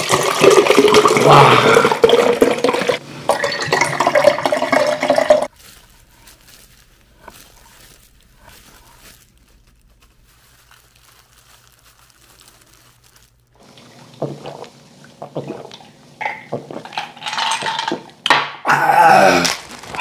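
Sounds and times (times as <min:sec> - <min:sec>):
men gulping drinks: 0:00.0 - 0:05.5, 0:13.6 - 0:19.6
throaty exhales: 0:01.2 - 0:02.1
faint handling of raw fish: 0:05.5 - 0:15.0.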